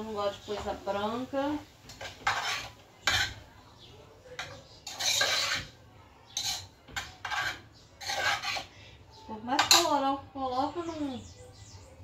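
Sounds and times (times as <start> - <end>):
metal spoon scraping a pot: 1.8 - 3.5, 4.3 - 9.0, 9.6 - 10.0.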